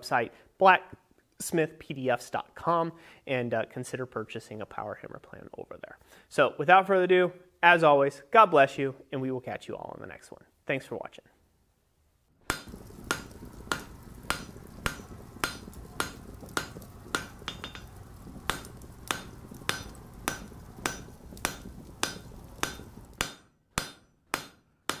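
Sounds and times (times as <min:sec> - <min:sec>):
hammer striking anvil: 0:12.5 - 0:17.9, 0:18.5 - 0:25.0
low rumble: 0:12.7 - 0:23.2.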